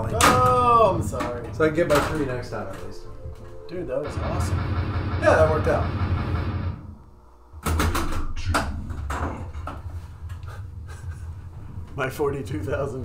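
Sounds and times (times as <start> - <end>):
pinball machine clicking and knocking: 7.6 - 9.9.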